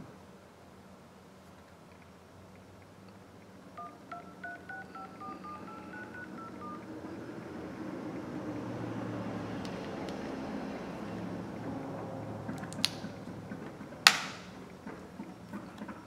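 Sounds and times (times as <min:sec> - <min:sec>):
phone keypad touch tones: 0:03.8 - 0:08.3.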